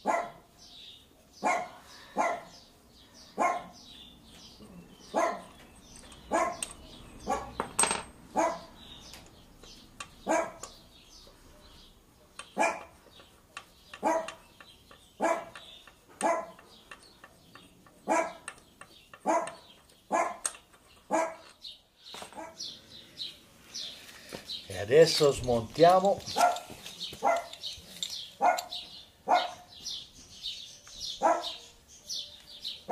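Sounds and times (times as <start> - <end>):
dog barking: 0.0 - 0.5, 1.4 - 2.5, 3.4 - 3.8, 5.1 - 5.5, 6.3 - 6.6, 7.2 - 7.6, 8.4 - 8.7, 10.2 - 10.6, 12.6 - 12.9, 14.0 - 14.4, 15.2 - 15.6, 16.2 - 16.6, 18.0 - 18.4, 19.2 - 20.4, 21.1 - 21.5, 26.3 - 27.6, 28.4 - 29.7, 31.2 - 31.7.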